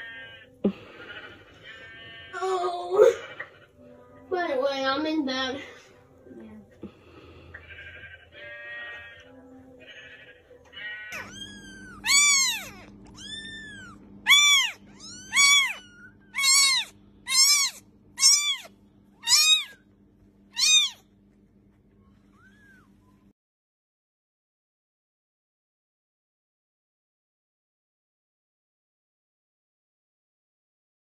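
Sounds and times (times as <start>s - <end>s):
steady low hum: 0.2s - 23.3s
kitten mewing: 10.8s - 19.8s, 20.5s - 21.0s, 22.3s - 22.9s.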